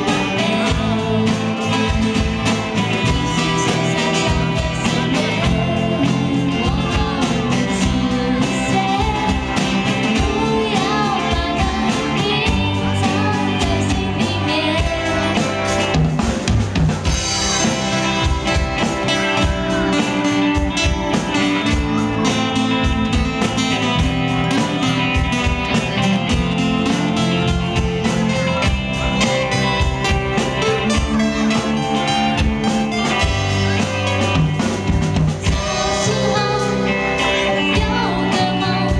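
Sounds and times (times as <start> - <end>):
woman singing: 0.0 - 2.1, 3.0 - 15.9, 35.4 - 38.9
acoustic guitar: 0.0 - 38.9
bass guitar: 0.0 - 38.9
drum kit beat: 0.0 - 38.9.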